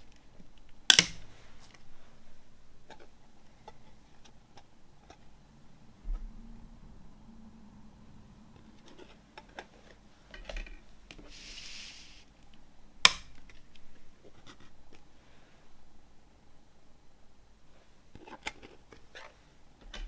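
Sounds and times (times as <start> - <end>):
brief hiss: 11.3 - 12.3.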